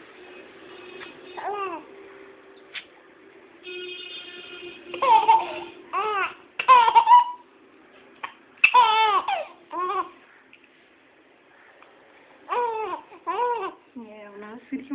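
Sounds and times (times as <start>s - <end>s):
baby laughing: 4.9s - 7.4s, 8.2s - 10.2s, 12.5s - 13.8s.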